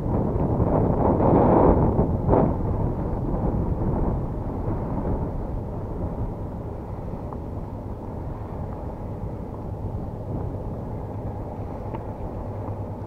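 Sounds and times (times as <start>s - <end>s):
faint steady hum: 0.0s - 13.0s
wind buffeting microphone: 0.0s - 13.0s
faint ticks: 11.1s - 12.8s.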